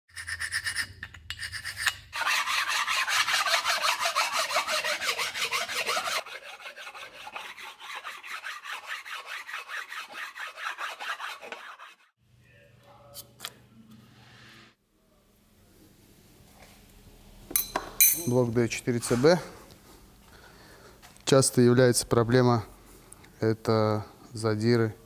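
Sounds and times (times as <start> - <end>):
abrasive pad scrubbing metal: 2.2 - 12.2.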